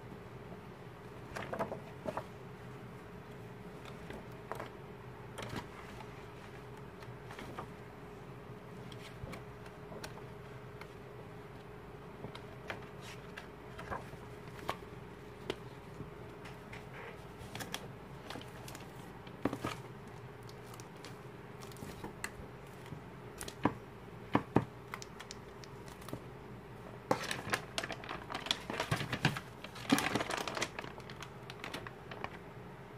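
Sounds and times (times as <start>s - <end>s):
faint steady hum: 0.0s - 32.9s
plastic wrap crinkling: 27.1s - 32.5s.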